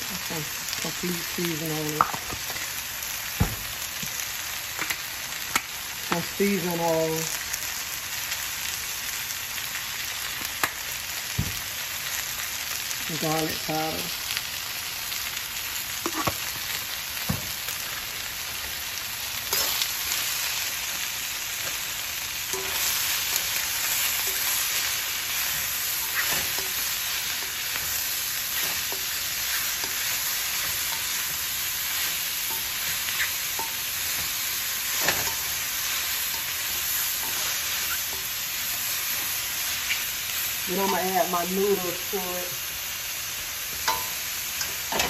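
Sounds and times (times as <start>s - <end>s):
vegetables sizzling in a wok: 0.0s - 45.0s.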